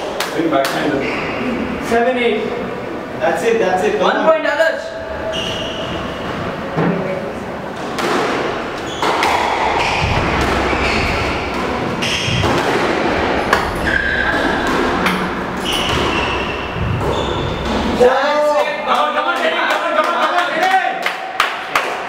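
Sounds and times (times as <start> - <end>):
shoes squeaking on floor: 5.2 - 6.5, 8.7 - 18.0
squash ball knocks: 7.8 - 13.8.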